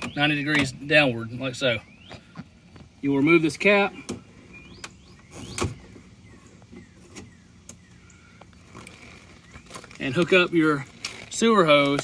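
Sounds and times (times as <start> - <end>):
light scraping: 8.3 - 12.0.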